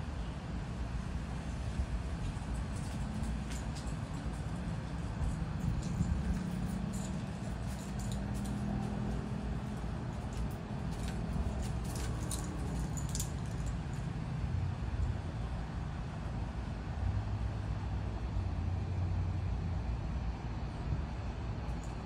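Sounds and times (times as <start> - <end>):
light clicks and scuffs: 2.1 - 14.1.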